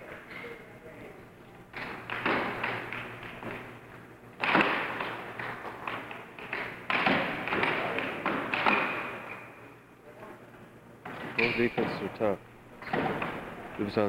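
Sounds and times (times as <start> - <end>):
air hockey puck clacking: 1.7 - 3.7, 4.4 - 9.5.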